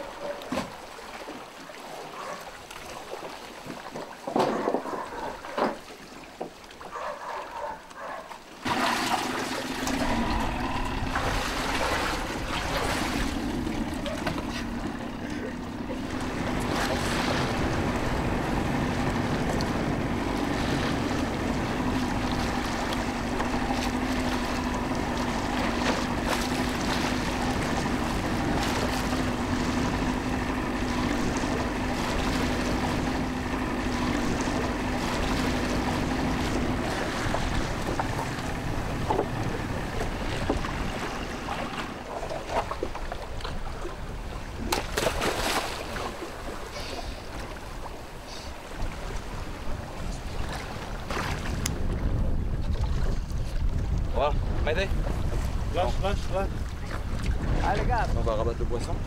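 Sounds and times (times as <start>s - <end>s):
water against hull: 0.0s - 59.0s
outboard motor running: 6.5s - 59.0s
wind on microphone: 48.6s - 59.0s.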